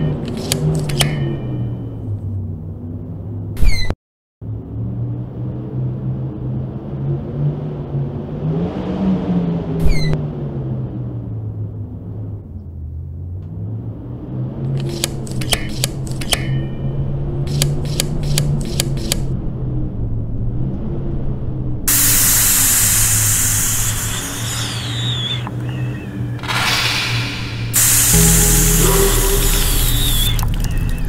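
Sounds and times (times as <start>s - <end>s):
sharp clicks: 14.7s - 16.4s, 17.5s - 19.3s
loud hiss: 21.9s - 25.4s, 26.6s - 30.4s
falling whistle: 23.4s - 25.5s, 27.8s - 31.0s
low shifting drone: 27.6s - 31.0s.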